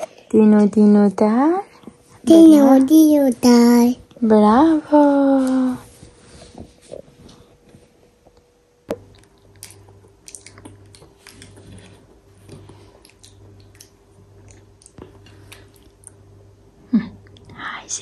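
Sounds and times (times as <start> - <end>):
faint steady hum: 0.0 - 18.0
toddler chewing food: 8.3 - 16.2.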